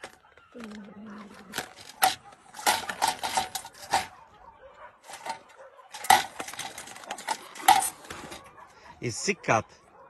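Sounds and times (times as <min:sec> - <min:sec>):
wire cage trap rattling: 0:00.0 - 0:04.2, 0:05.0 - 0:08.6.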